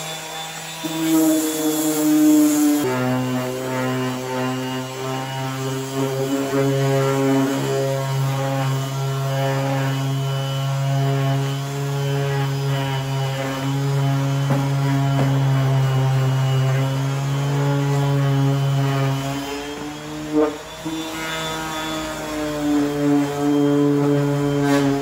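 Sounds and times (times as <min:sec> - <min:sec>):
electric orbital sander humming: 0:00.0 - 0:25.0.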